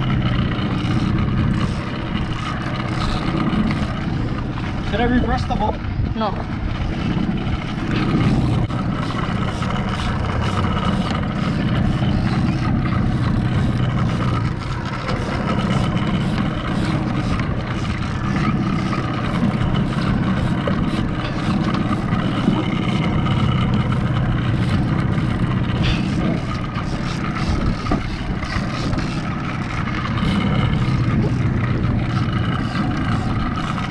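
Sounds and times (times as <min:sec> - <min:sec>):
small outboard motor running: 0:00.0 - 0:33.9
water splashing around hull: 0:00.0 - 0:33.9.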